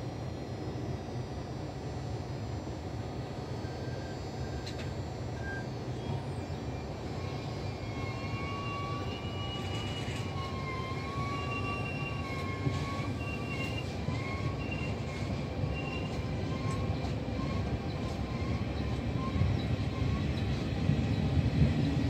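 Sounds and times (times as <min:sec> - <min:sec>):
thin wavering squeal: 0:05.4 - 0:20.7
train wheels rumbling on track: 0:05.8 - 0:22.0.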